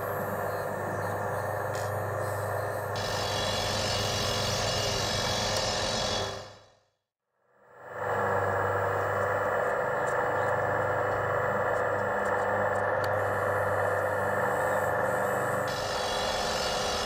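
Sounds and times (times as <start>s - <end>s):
model drill whirring: 0.0s - 6.7s, 8.1s - 17.0s
low hum: 7.4s - 17.0s.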